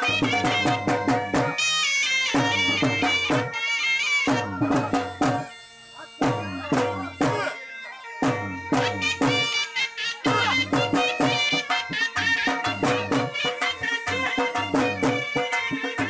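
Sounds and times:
fast drumbeats: 0:00.0 - 0:01.6, 0:02.3 - 0:03.6, 0:04.3 - 0:05.5, 0:06.2 - 0:07.6, 0:08.2 - 0:09.6, 0:10.3 - 0:16.0
wind instrument melody: 0:00.0 - 0:16.0.

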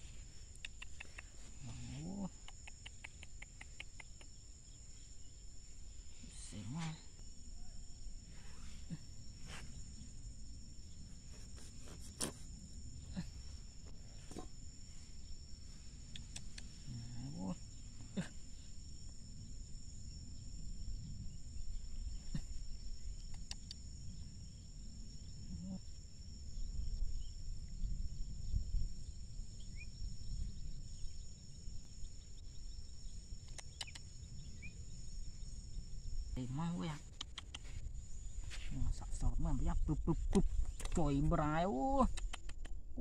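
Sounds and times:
faint clicks: 0:00.5 - 0:01.4, 0:02.3 - 0:04.4, 0:16.1 - 0:16.7, 0:23.2 - 0:23.8, 0:33.4 - 0:34.1, 0:37.1 - 0:37.8, 0:42.1 - 0:42.8.

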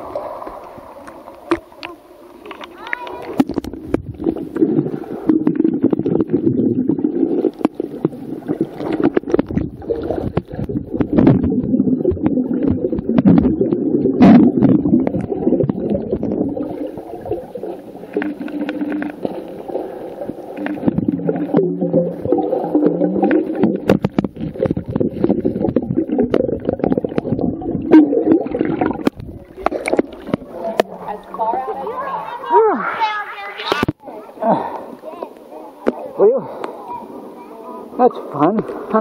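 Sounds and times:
muffled underwater gurgling: 0:01.6 - 0:32.5.

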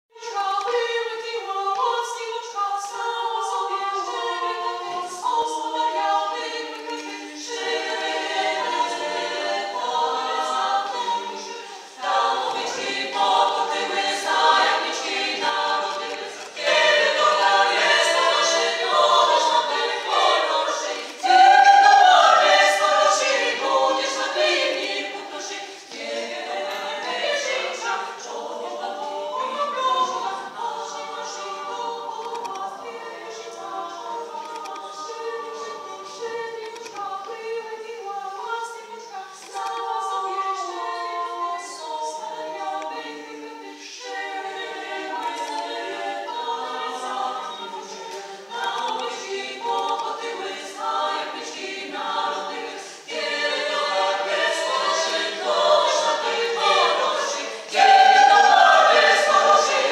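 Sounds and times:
women's choir singing a cappella: 0:00.1 - 0:59.9.

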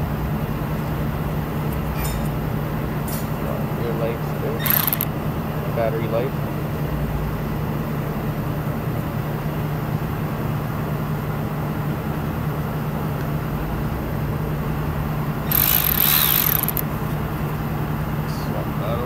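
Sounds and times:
cordless ratchet motor whining: 0:04.6 - 0:05.1, 0:15.5 - 0:17.0.

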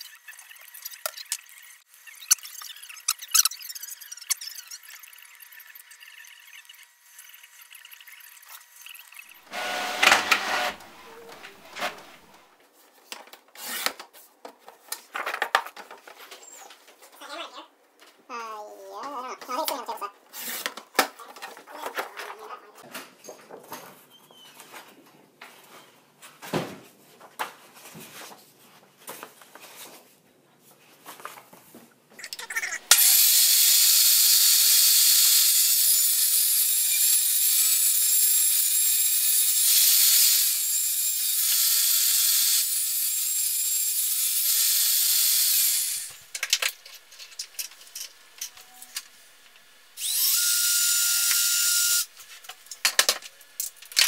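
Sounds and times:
table saw cutting board: 0:09.5 - 0:12.4, 0:32.9 - 0:46.2, 0:50.0 - 0:52.1
cordless drill whining: 0:50.0 - 0:52.1.

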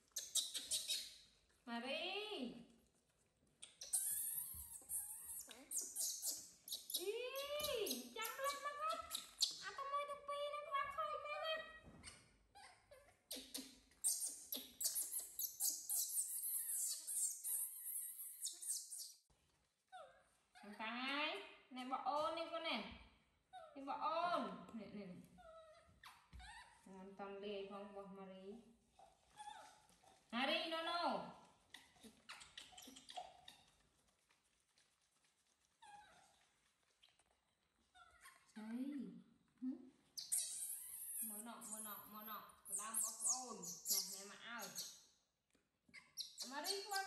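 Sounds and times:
baby monkey screaming: 0:00.2 - 0:01.1, 0:03.8 - 0:09.6, 0:13.3 - 0:19.0, 0:40.2 - 0:44.9.

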